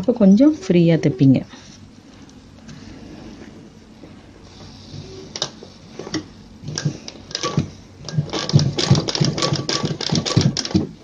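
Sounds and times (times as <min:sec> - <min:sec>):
sewing machine stitching: 0:06.0 - 0:11.0.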